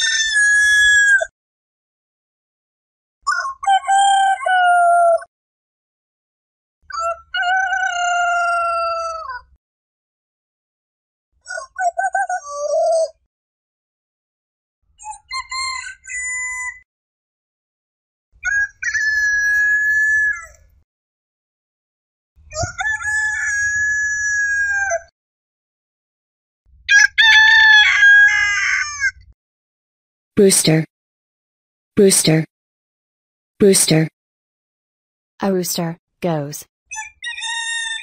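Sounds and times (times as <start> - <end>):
rooster crowing: 26.9 - 29.0.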